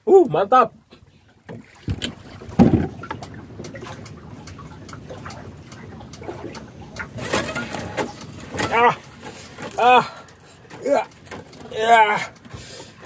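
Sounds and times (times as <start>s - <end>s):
water around boat: 0.0s - 13.0s
wind: 0.0s - 13.0s
light knocks and rustles: 0.9s - 5.4s.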